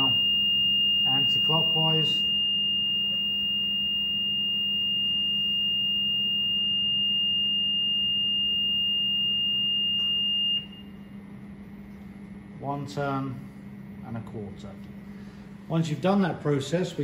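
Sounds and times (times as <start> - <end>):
high continuous beep: 0.0 - 11.0.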